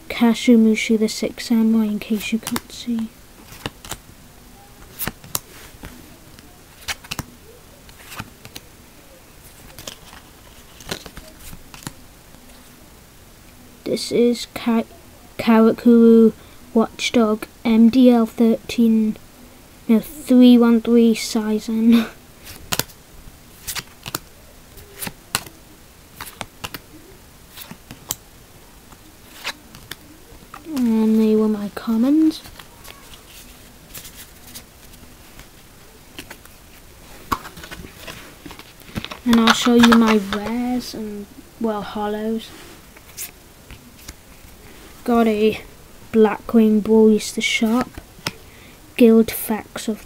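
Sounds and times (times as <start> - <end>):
cards sliding against each other: 2.2 - 4.0, 4.8 - 7.3, 7.9 - 8.7, 9.4 - 12.6, 22.4 - 25.5, 26.2 - 26.8, 27.5 - 28.2, 28.9 - 31.2, 37.2 - 40.7
trading cards snapping: 6.8 - 7.3, 9.6 - 12.0, 22.5 - 23.0, 23.6 - 25.6, 26.2 - 26.8, 29.3 - 30.9, 37.3 - 40.6.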